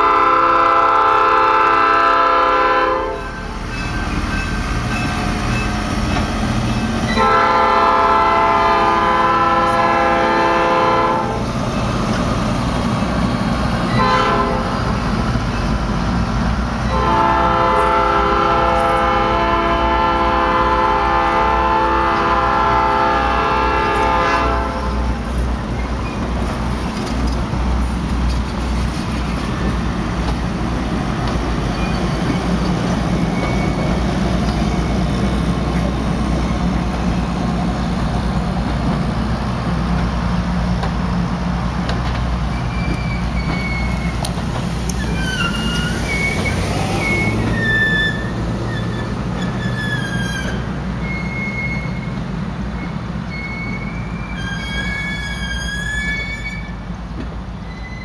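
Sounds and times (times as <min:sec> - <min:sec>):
locomotive air horn blasts: 0:00.0 - 0:03.4, 0:07.1 - 0:11.4, 0:13.9 - 0:14.8, 0:16.9 - 0:25.1
train cars rumbling on rails: 0:00.0 - 0:58.0.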